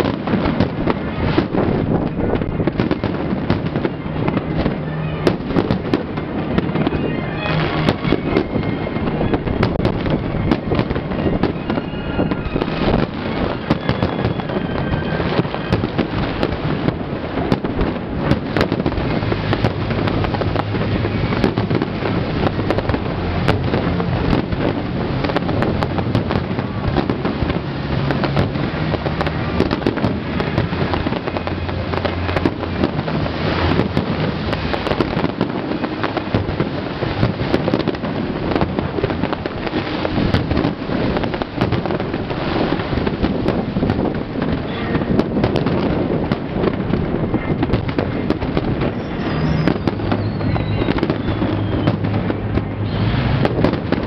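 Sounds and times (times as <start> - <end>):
fireworks booming and crackling: 0.0 - 54.0.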